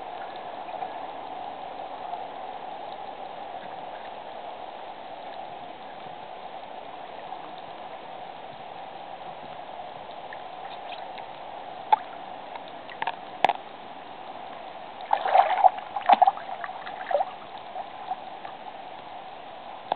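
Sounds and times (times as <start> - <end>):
water lapping and gurgling: 0.0 - 19.9
water splashing: 14.9 - 18.8.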